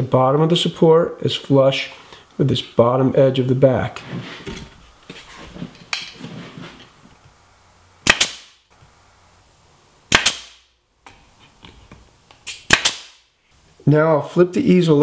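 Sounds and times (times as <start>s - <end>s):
nail gun firing: 8.0s - 8.6s, 10.1s - 10.6s, 12.5s - 13.2s.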